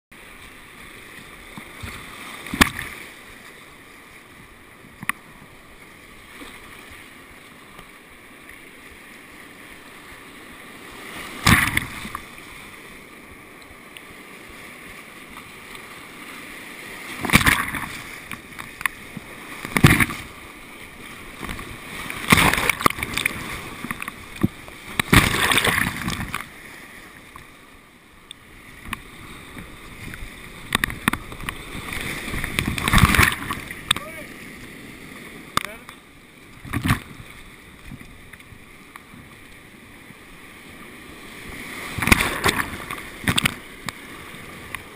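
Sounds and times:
paddle strokes: 0:00.2 - 0:44.9
whitewater roaring: 0:00.2 - 0:44.9
loud splashes: 0:17.2 - 0:18.0, 0:22.2 - 0:23.5, 0:25.0 - 0:26.3.

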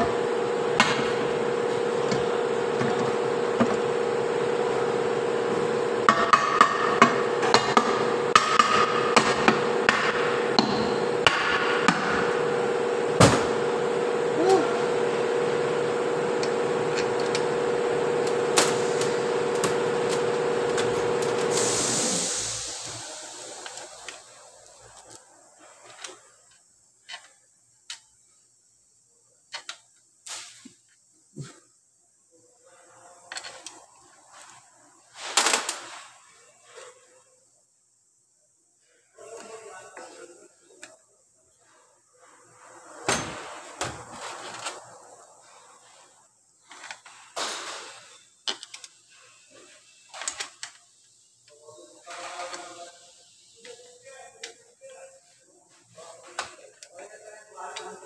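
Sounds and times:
steady machine hum: 0:00.0 - 0:25.2.

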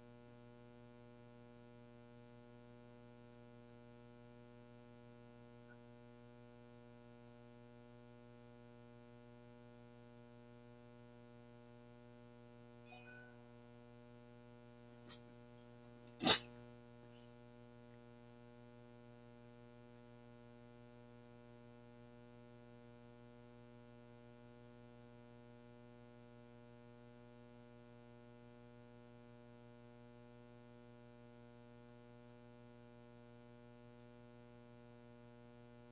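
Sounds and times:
short sharp noise: 0:16.2 - 0:16.5.

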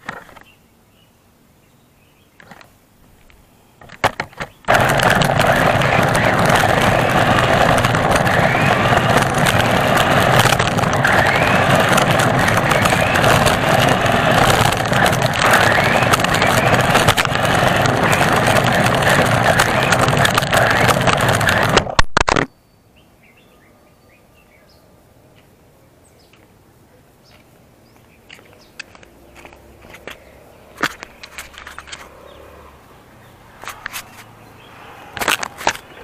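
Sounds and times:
rc car tyre and drivetrain rush: 0:03.8 - 0:22.4, 0:28.8 - 0:36.0.

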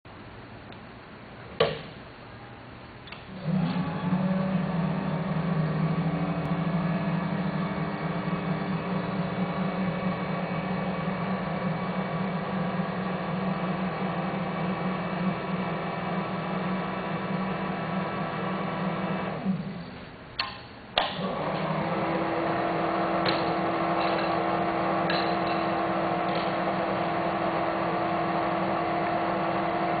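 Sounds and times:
tube bender motor drone: 0:03.4 - 0:19.7, 0:21.2 - 0:30.0.

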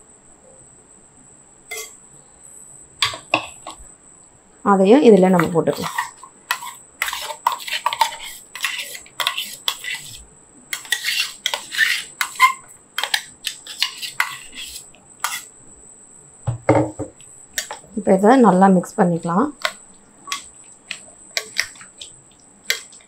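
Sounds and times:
metal spoon scraping steel jar: 0:05.4 - 0:10.2, 0:10.8 - 0:15.5.

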